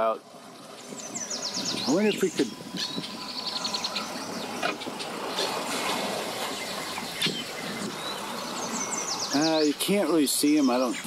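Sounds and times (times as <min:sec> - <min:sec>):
outdoor background noise: 0:00.0 - 0:11.0
bird trilling chirps: 0:00.6 - 0:11.0.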